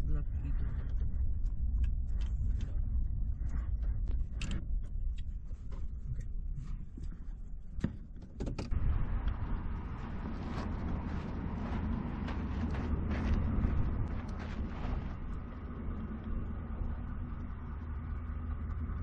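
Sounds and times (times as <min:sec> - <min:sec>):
cab rattles and clicks: 0:03.4 - 0:08.8.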